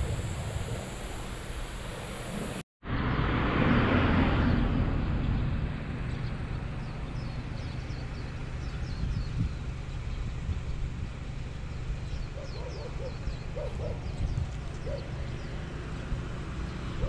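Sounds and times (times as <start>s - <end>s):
car passing close by: 2.8s - 5.9s.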